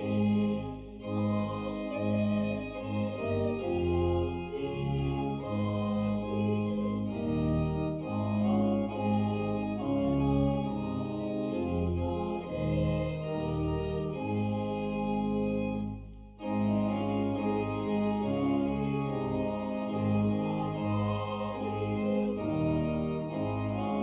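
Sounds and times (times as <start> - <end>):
organ playing hymn chords: 0.0 - 24.0.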